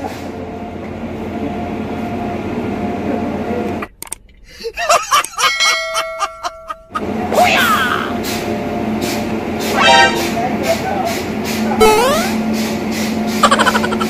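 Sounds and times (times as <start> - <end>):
man laughing heartily: 4.6 - 7.0, 13.4 - 14.0
held tone: 9.8 - 10.3, 11.8 - 12.4.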